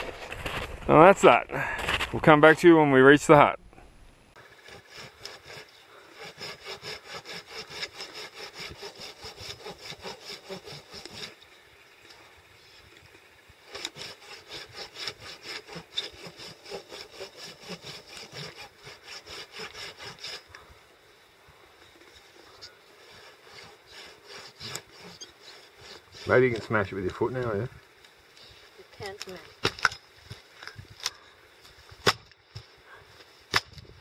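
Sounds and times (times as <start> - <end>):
hand saw cutting dead branch: 4.4 - 11.5, 13.6 - 20.6, 22.0 - 27.7.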